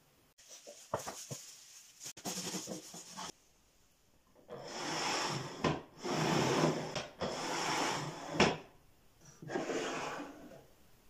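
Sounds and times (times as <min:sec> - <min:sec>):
wooden drawers sliding: 0:09.4 - 0:10.6.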